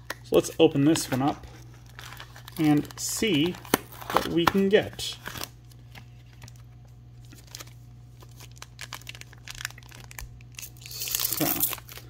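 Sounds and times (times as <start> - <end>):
foil wrapper crinkling: 0.9 - 12.0.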